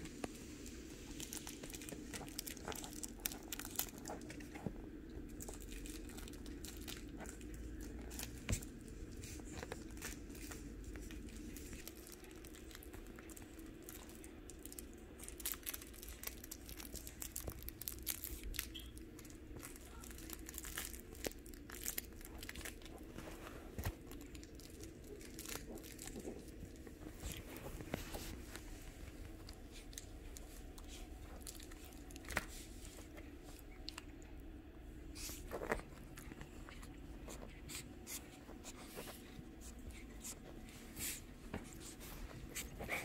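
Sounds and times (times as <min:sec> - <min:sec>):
faint steady hum: 0:00.0 - 0:43.0
puppies rustling and scuffing: 0:07.0 - 0:13.8, 0:22.4 - 0:34.2, 0:35.1 - 0:43.0.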